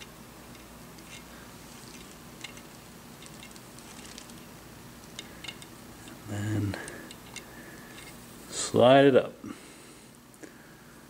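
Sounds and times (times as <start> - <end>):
light metal ticks and scrapes: 0.0 - 4.4
steady low hum: 0.0 - 11.0.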